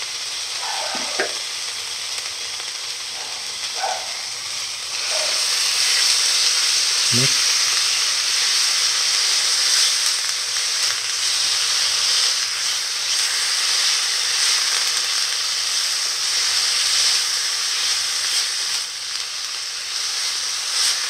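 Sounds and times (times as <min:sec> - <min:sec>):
meat sizzling in a pan: 0:00.0 - 0:21.0
spatula stirring in pan: 0:00.6 - 0:01.4.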